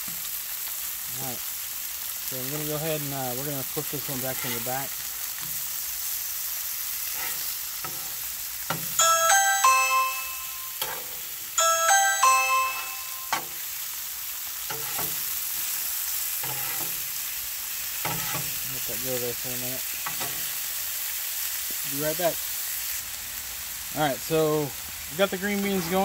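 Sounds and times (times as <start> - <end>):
food sizzling on a griddle: 0.0 - 26.0
metal spatula scraping and tapping: 4.2 - 4.7, 5.4 - 5.8, 7.0 - 9.0, 10.8 - 11.3, 13.3 - 13.6, 14.7 - 15.8, 16.4 - 17.1, 18.0 - 18.6, 20.0 - 20.5
short chiming melody: 9.0 - 10.8, 11.6 - 13.4.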